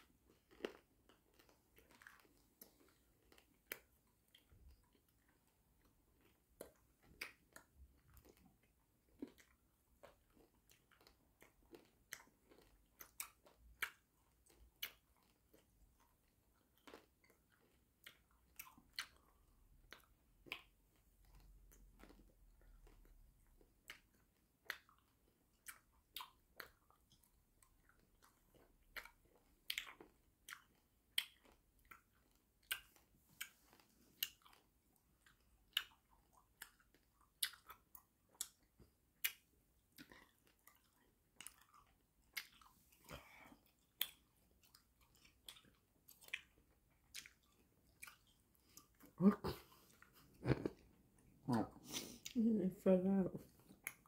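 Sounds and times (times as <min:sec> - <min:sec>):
mouth eating hard candy: 0:23.9 - 0:52.4.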